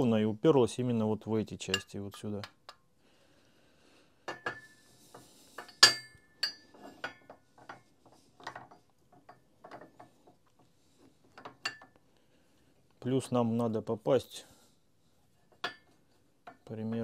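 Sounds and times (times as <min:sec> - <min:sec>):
ringing metallic clink: 0:05.7 - 0:06.7.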